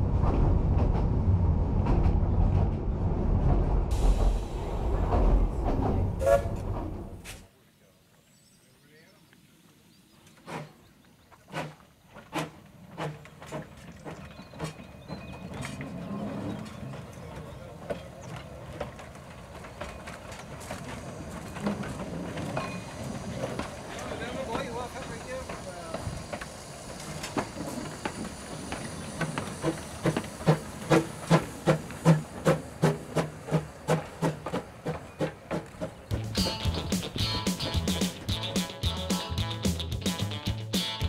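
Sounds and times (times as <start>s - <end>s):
rumble of engine and wheels: 0.0s - 7.2s, 12.6s - 38.5s
steam hiss: 3.9s - 6.6s, 20.6s - 38.0s
steam locomotive exhaust chuffs: 3.9s - 7.3s, 11.5s - 41.0s.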